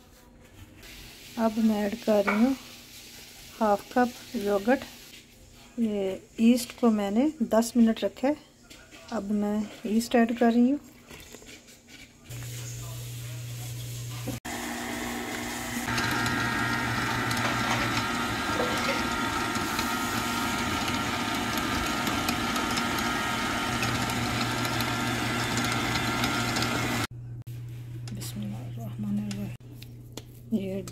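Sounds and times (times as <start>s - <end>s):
stand mixer motor humming: 14.3s - 27.1s.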